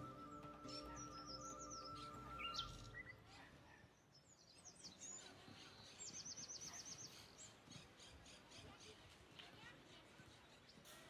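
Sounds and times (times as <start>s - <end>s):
soft background music: 0.0s - 3.2s
birds chirping and trilling: 0.0s - 9.2s.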